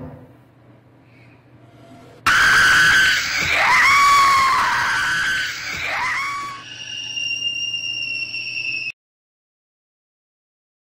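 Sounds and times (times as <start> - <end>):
loud high-pitched scream: 2.3 - 9.0.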